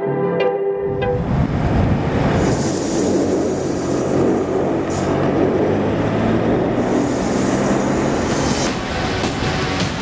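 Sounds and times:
car engine at speed: 1.3s - 10.0s.

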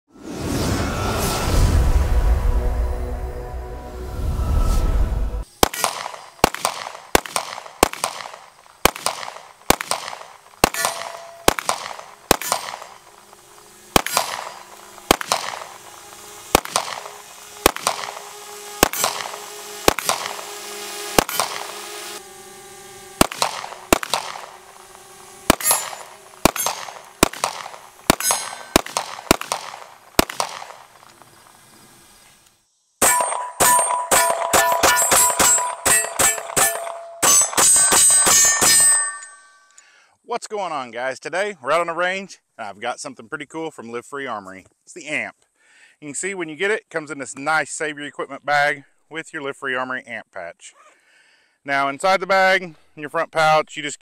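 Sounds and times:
pistol shots: 5.6s - 22.0s, 23.2s - 31.1s, 33.0s - 38.9s
metallic target clang and ringing: 10.6s - 13.0s, 14.0s - 15.7s, 25.5s - 29.8s, 33.0s - 39.8s.

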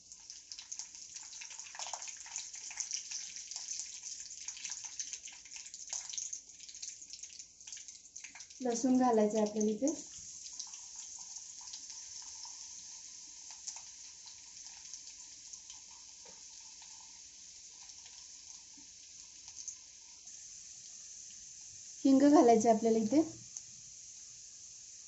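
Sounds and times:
garlic sizzling in oil: 0.0s - 25.0s
small crackles: 13.4s - 17.2s, 17.8s - 20.3s.

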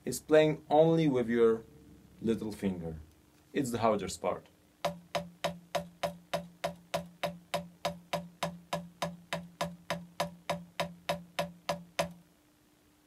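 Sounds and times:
drumstick on practice pad: 4.8s - 12.3s.

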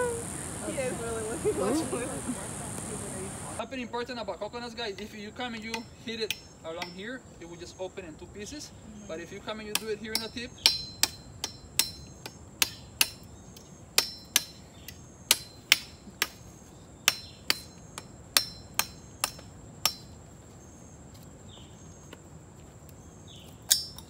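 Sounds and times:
machete chopping coconut: 15.3s - 16.4s, 17.1s - 20.1s.

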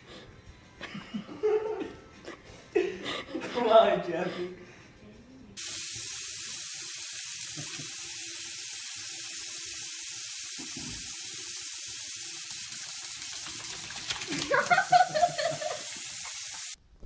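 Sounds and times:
faucet running into sink: 5.6s - 16.8s.

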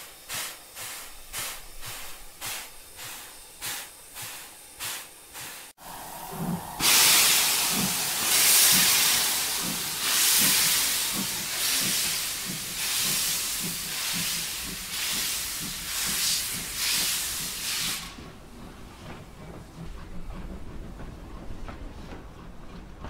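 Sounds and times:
steam hissing from drain cocks: 0.0s - 18.3s
steam locomotive exhaust chuffing: 0.0s - 23.0s
locomotive rumble: 5.8s - 23.0s.

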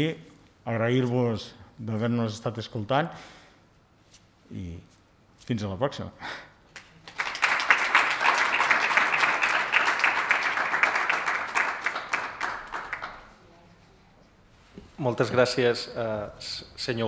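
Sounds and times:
audience applauding: 6.8s - 13.3s.

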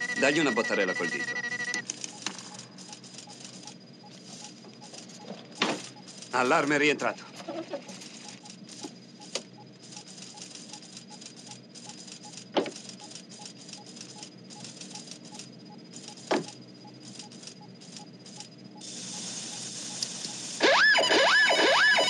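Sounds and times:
faint steady high tone: 0.0s - 1.8s
sharp falling blips: 0.0s - 4.1s
steady hiss: 18.8s - 20.6s.

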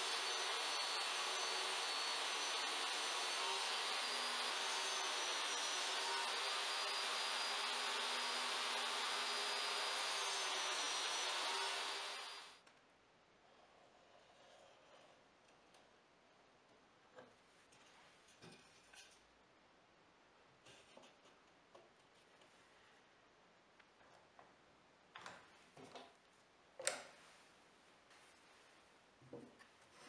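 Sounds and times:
table saw cutting wood: 0.0s - 12.6s.

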